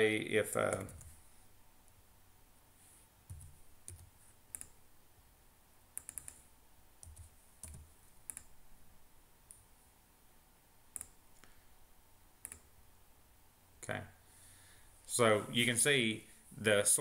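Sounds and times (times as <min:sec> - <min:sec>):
mouse clicks: 0:07.0 - 0:08.5, 0:11.0 - 0:11.6, 0:12.4 - 0:12.7.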